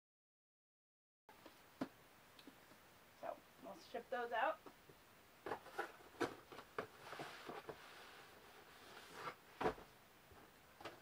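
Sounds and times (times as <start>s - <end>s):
cardboard rustling: 5.4s - 11.0s.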